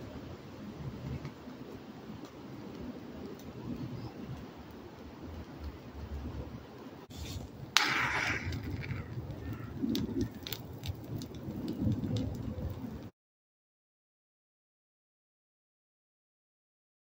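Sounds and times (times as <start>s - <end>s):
fire crackling and popping: 0.0s - 13.1s
low rumble of fire: 0.0s - 13.1s.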